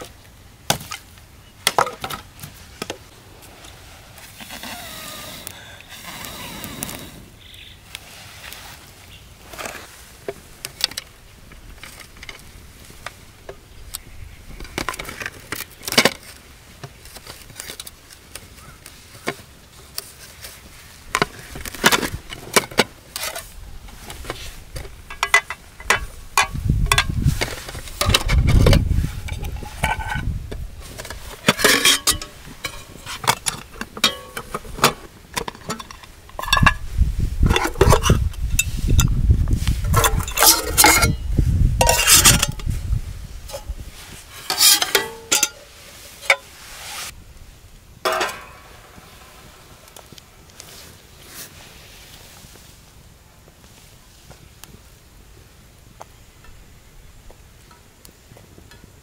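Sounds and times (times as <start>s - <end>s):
cookware clinking and scraping: 28.0s - 30.3s, 31.4s - 36.8s, 40.0s - 41.2s, 41.8s - 42.6s, 44.3s - 46.5s, 48.1s - 48.6s.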